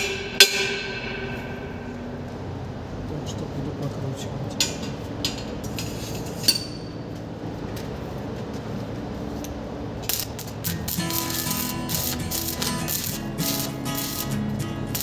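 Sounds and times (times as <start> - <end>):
welding arc crackling: 10.0 - 15.0.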